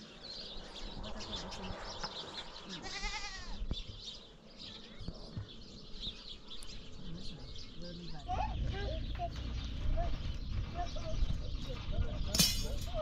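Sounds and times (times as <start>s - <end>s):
livestock bleating: 2.7s - 3.6s.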